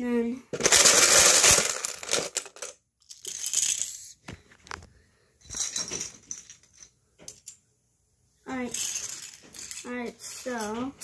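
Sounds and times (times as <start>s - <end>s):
plastic bricks clattering into bin: 0.6s - 4.0s, 8.7s - 10.6s.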